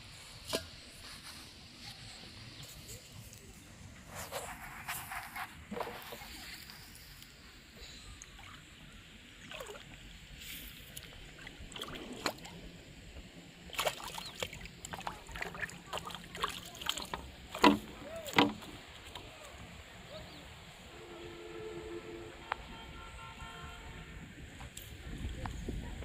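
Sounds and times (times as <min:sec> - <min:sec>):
fish splashing in water: 0:09.4 - 0:12.6, 0:13.6 - 0:19.4.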